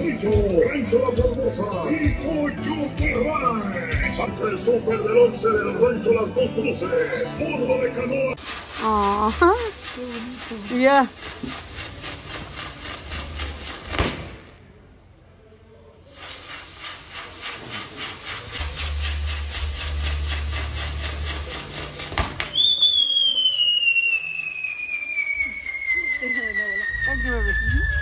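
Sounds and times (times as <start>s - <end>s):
fireworks popping: 8.4s - 14.8s, 16.1s - 28.0s
sharp firework crack: 8.4s - 14.8s, 16.1s - 28.0s
falling firework whistle: 16.2s - 28.0s.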